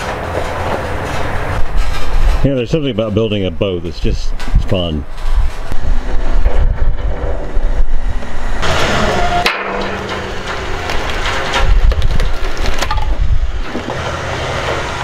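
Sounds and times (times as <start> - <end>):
steel frame dragged over rollers: 5.1 - 11.9
creaking and knocking: 5.6 - 14.0.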